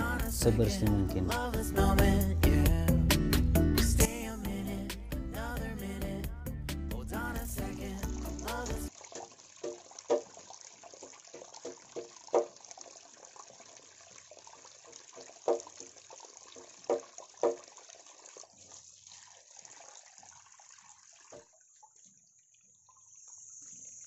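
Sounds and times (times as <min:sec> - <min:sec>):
water running from a hose: 0:07.3 - 0:24.0.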